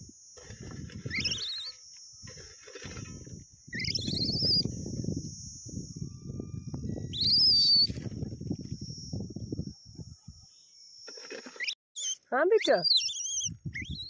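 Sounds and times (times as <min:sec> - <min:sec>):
hoe scraping dry soil: 0:00.4 - 0:03.4, 0:11.1 - 0:11.8.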